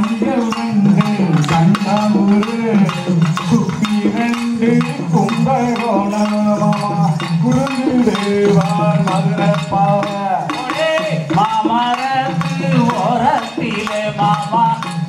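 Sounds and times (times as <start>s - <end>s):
percussive beat: 0.0s - 15.0s
voices singing folk melody: 0.0s - 15.0s.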